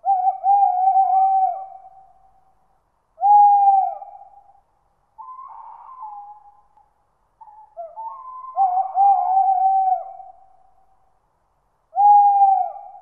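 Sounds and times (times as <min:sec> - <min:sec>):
owl hooting: 0:00.0 - 0:02.5, 0:03.2 - 0:04.6, 0:05.2 - 0:06.7, 0:07.4 - 0:10.9, 0:11.9 - 0:13.0.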